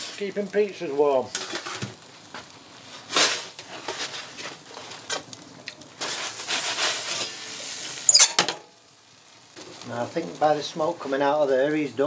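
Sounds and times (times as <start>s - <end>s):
metal peel scraping on stone: 8.1s - 8.6s.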